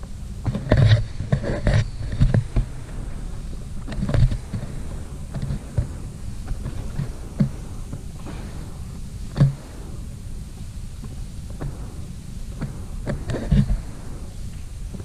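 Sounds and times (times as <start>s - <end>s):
air mattress rubbing and creaking: 0.0s - 15.0s
steady low rumble: 0.0s - 15.0s.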